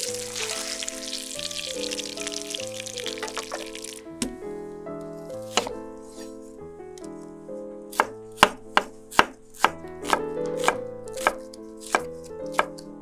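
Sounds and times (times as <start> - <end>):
knife chopping on wooden board: 5.5 - 5.8, 7.9 - 12.8.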